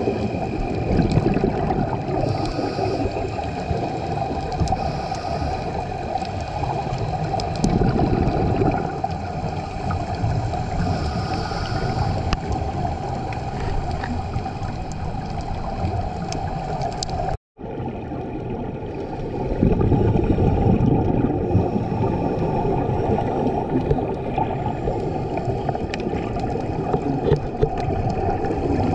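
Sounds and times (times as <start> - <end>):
gurgling bubble rumble: 0.0 - 28.9
muffled underwater water rush: 0.0 - 28.9.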